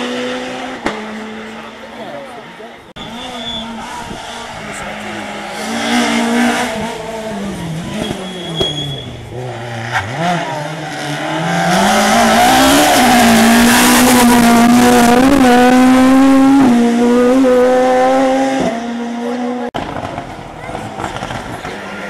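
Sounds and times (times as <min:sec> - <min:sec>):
rally car engine revving: 0:00.0 - 0:22.0.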